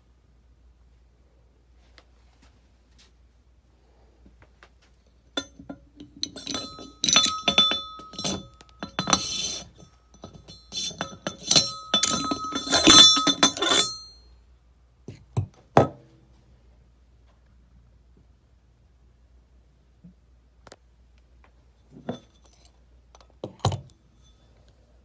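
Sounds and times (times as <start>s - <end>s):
metal lid clinking and scraping: 5.3s - 14.2s, 21.9s - 22.7s.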